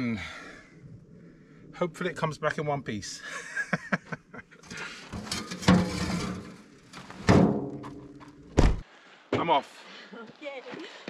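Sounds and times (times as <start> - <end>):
knocks and shuffling: 4.6 - 9.6
car door shutting: 8.6 - 8.8.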